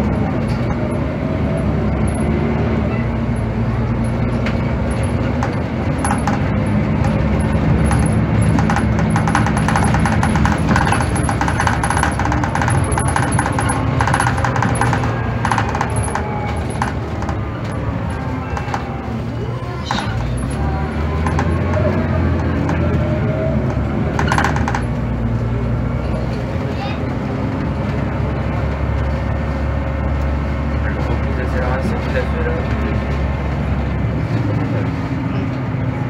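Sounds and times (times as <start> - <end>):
bus engine running: 0.0 - 36.0
interior fittings rattling: 4.0 - 25.0.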